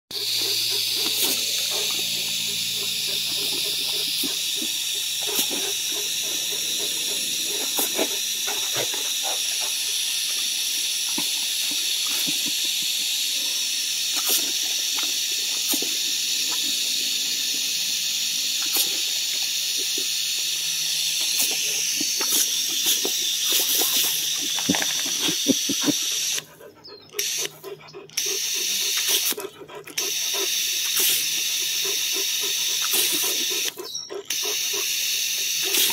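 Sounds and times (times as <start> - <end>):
hose nozzle spraying water: 0.1 - 13.2, 13.8 - 26.4, 28.2 - 35.9.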